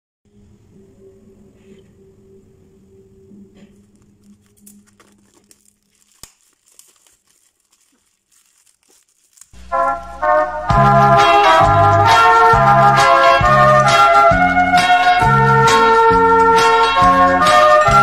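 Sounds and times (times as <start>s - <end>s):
plastic packaging crinkling: 3.8s - 9.8s
loud brass music: 9.6s - 18.0s.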